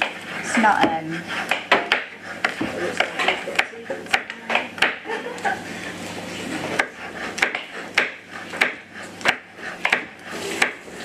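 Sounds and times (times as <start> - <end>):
knife tapping on chopping board: 0.8 - 5.1, 6.8 - 10.8.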